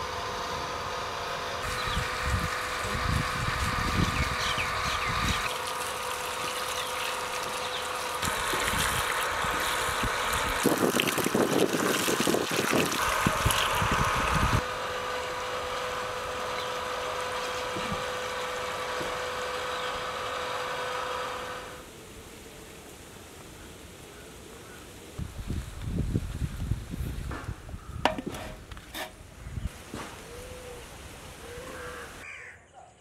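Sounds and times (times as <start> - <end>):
water pouring from hose: 2.1 - 14.6.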